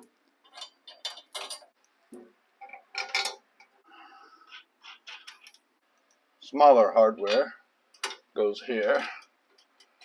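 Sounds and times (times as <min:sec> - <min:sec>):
steel bolts clinking on metal: 0:00.0 - 0:01.7.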